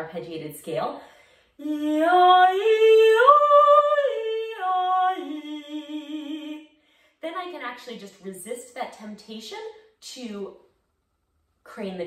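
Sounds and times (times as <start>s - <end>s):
woman singing vocal exercise: 1.5s - 6.8s.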